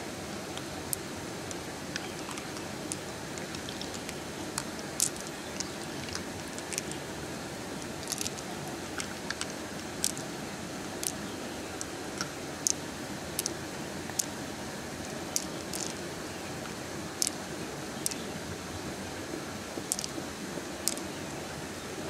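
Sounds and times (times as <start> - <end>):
running water: 0.0 - 22.0
soft wet squelches: 0.5 - 7.1
pearls clicking together: 2.0 - 7.0, 7.8 - 10.3, 11.0 - 11.2, 13.4 - 14.3, 15.3 - 16.0, 17.2 - 17.4, 18.0 - 18.2, 19.9 - 20.2, 20.8 - 21.1.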